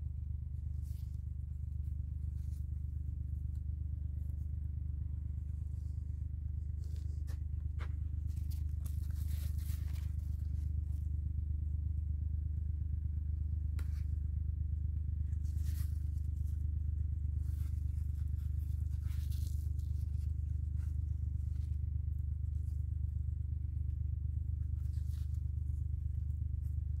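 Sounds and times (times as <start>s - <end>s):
low hum: 0.0s - 27.0s
leaves rustling and tearing: 8.2s - 11.0s, 15.4s - 16.6s, 17.4s - 22.8s, 24.7s - 25.9s.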